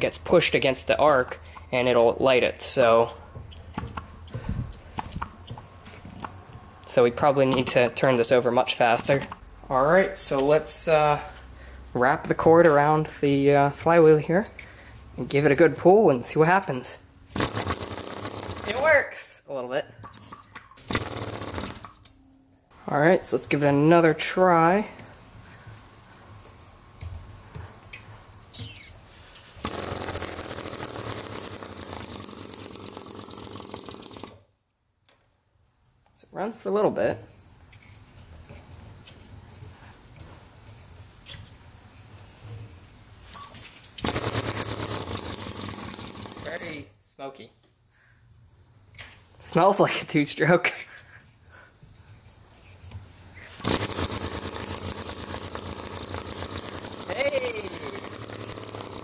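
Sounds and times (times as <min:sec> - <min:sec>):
rope pull: 0:17.3 - 0:18.9, 0:29.6 - 0:34.4, 0:44.0 - 0:46.8, 0:53.5 - 0:59.0
two-stroke engine buzzing: 0:17.4 - 0:18.9, 0:20.9 - 0:21.9, 0:29.6 - 0:34.4, 0:44.0 - 0:46.7, 0:53.6 - 0:59.0
spark plug arcing: 0:44.0 - 0:46.8, 0:53.6 - 0:59.0.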